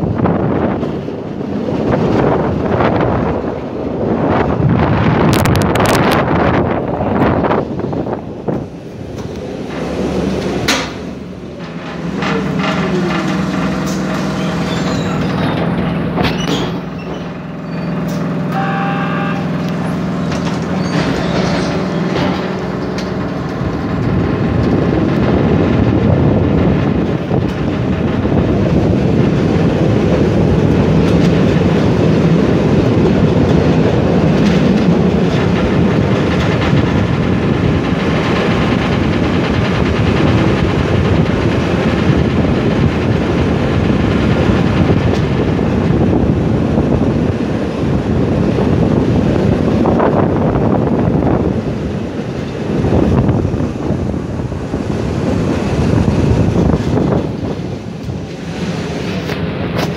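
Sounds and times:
air rushing past window: 0:00.0 - 0:18.5, 0:19.4 - 0:59.9
tram motor hum: 0:00.0 - 0:59.9
tram wheels rolling on rails: 0:00.0 - 0:59.9
sharp clicks and knocks: 0:08.5 - 0:18.3, 0:19.6 - 0:25.9.

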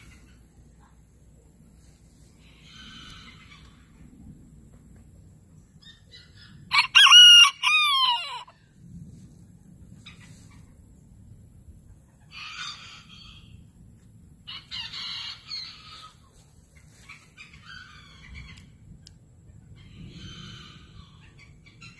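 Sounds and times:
rooster crowing: 0:06.7 - 0:08.5.

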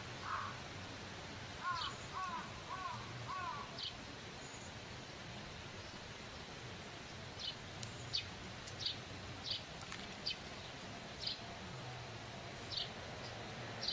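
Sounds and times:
outdoor background noise: 0:00.0 - 0:13.9
bird chirping: 0:01.6 - 0:04.8, 0:07.1 - 0:11.4, 0:12.7 - 0:13.9.

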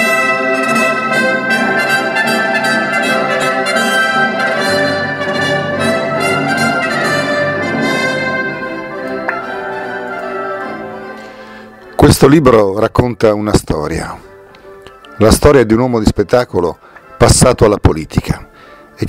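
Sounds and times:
orchestral brass chords: 0:00.0 - 0:12.0.

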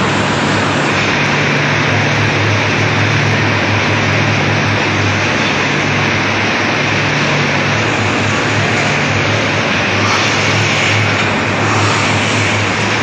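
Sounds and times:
machinery rushing noise: 0:00.0 - 0:13.0
steady low hum: 0:00.0 - 0:13.0.

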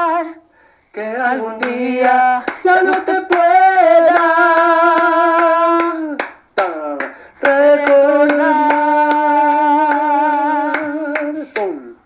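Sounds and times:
woman singing a cappella: 0:00.0 - 0:06.2, 0:07.4 - 0:12.0
hand claps: 0:00.9 - 0:12.0.

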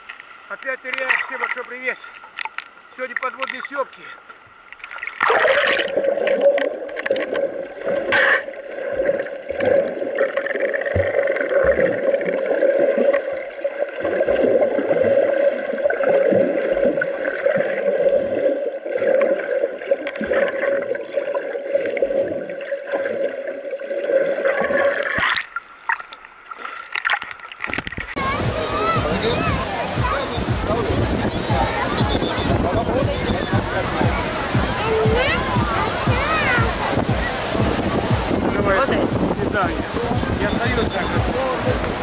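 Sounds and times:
water gurgling and bubbling: 0:04.5 - 0:42.0
muffled underwater hum: 0:27.8 - 0:42.0.

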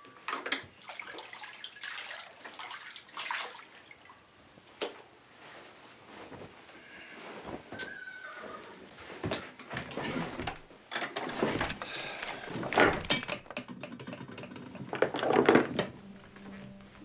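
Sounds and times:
glass bottles clinking: 0:11.5 - 0:15.9.

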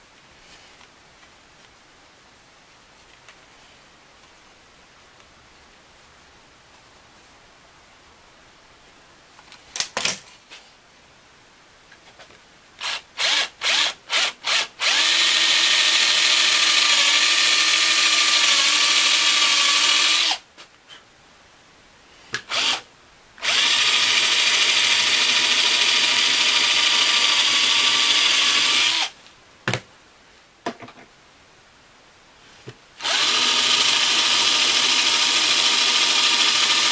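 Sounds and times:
electric drill motor whine: 0:12.8 - 0:20.4, 0:22.5 - 0:22.8, 0:23.4 - 0:29.1, 0:33.0 - 0:36.9.

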